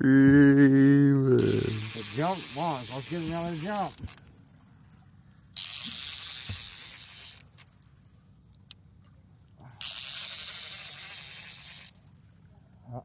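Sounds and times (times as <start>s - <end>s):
fishing reel drag screaming: 1.1s - 4.6s, 5.4s - 8.0s, 9.6s - 12.6s.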